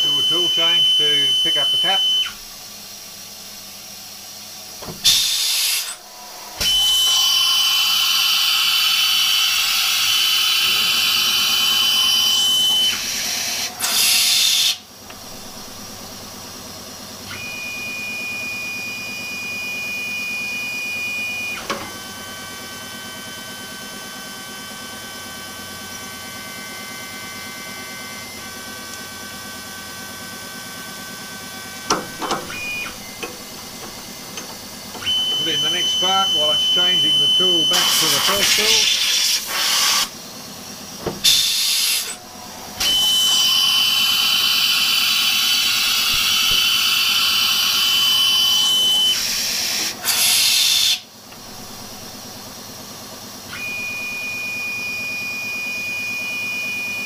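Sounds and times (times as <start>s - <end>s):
compressed air hissing: 5.0s - 9.3s, 33.4s - 40.2s, 41.2s - 42.2s
milling spindle whine: 5.0s - 13.8s, 24.6s - 39.2s, 41.2s - 50.0s.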